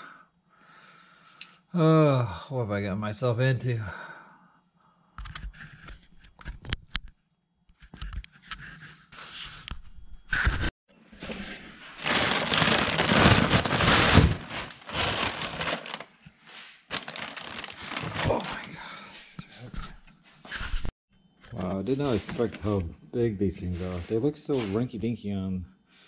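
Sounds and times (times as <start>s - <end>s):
plastic bags crinkling: 11.3s - 16.2s, 16.9s - 18.8s.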